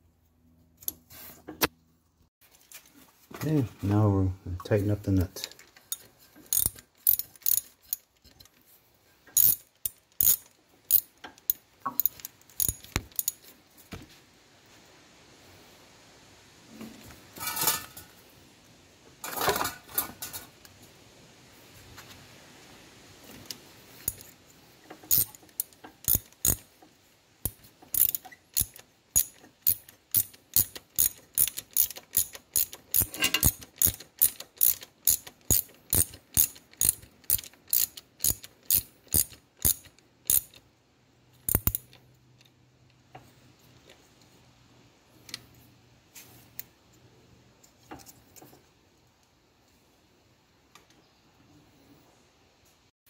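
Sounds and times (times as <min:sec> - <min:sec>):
ratchet wrench clicking: 0:05.9 - 0:08.4, 0:09.4 - 0:13.4, 0:24.0 - 0:24.3, 0:25.1 - 0:26.7, 0:27.4 - 0:40.6, 0:41.5 - 0:42.0.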